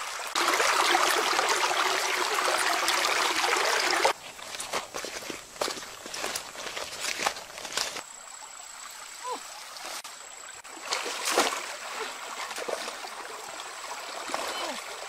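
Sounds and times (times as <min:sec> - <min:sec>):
stream running over stones: 0:00.0 - 0:15.0
water splash: 0:10.7 - 0:13.3.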